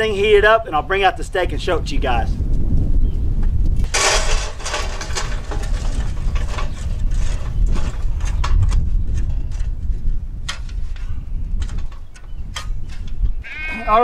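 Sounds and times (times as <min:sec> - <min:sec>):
wind rumble on microphone: 0:00.0 - 0:14.0
charcoal briquettes clattering into metal: 0:03.8 - 0:13.2.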